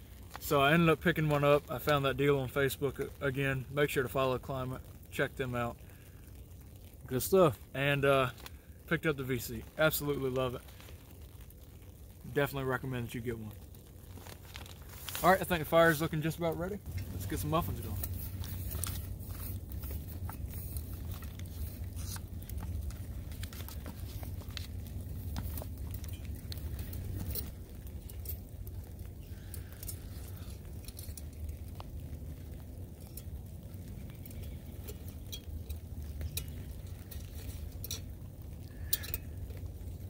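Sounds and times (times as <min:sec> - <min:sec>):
low steady rumble: 0:00.0 - 0:40.0
paper crinkling and scraping in pan: 0:12.7 - 0:40.0.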